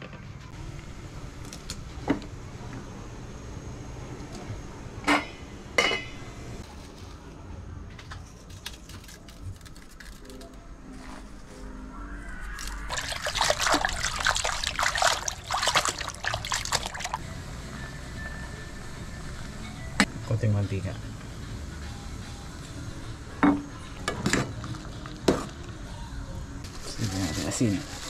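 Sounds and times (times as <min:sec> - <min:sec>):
water boiling in pot: 0:12.9 - 0:17.2.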